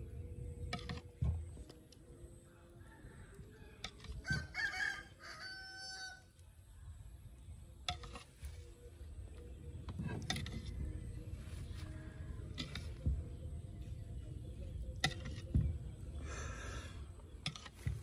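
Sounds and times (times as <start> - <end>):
rooster crowing: 2.9 - 6.2.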